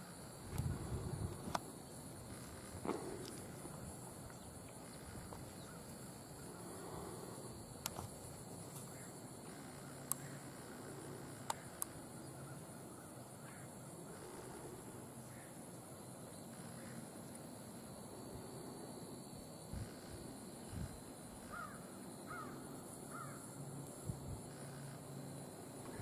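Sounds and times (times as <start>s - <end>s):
high-pitched insect drone: 0.0s - 26.0s
sharp clicks: 10.0s - 10.3s.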